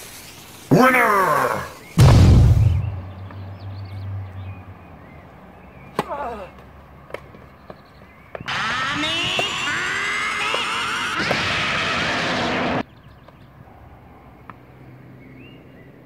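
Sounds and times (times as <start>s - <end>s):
birds chirping: 0.0s - 16.0s
cartoon explosion boom: 2.0s - 3.1s
tennis balls struck by rackets: 5.8s - 8.5s.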